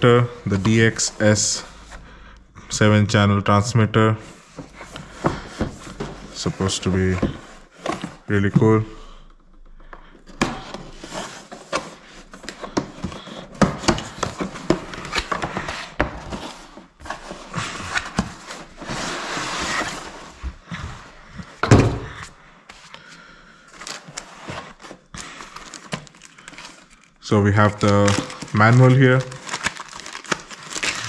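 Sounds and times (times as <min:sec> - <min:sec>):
packaging rustling: 0:10.2 - 0:20.6, 0:23.6 - 0:31.0
box scraping out of sleeve: 0:10.6 - 0:21.1.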